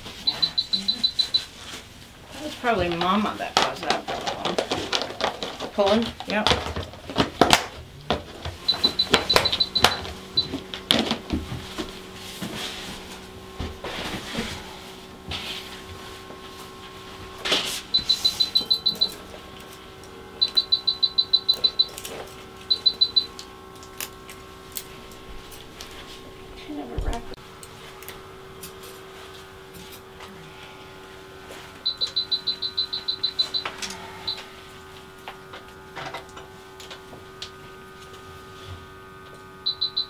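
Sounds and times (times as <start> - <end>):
low steady equipment hum: 0.0 - 40.0
rapid high-pitched electronic beeping: 0.2 - 1.5, 8.6 - 10.6, 17.9 - 19.2, 20.4 - 22.0, 22.7 - 23.3, 31.8 - 34.4, 39.7 - 40.0.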